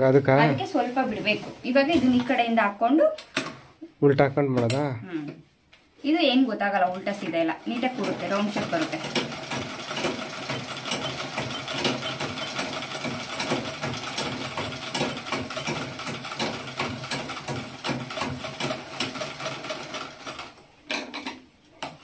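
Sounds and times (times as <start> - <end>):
treadle sewing machine clattering: 7.6 - 20.5.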